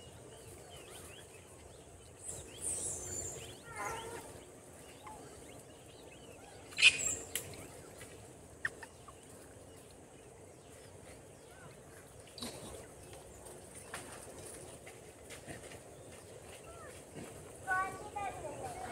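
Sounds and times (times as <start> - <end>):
macaques squealing and chattering: 2.4 - 4.4, 6.4 - 7.8
monkey shrill call: 6.7 - 7.3.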